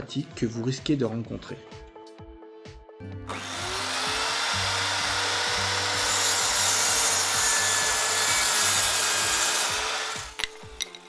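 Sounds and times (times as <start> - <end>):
saw cutting through wood: 3.3 - 10.4.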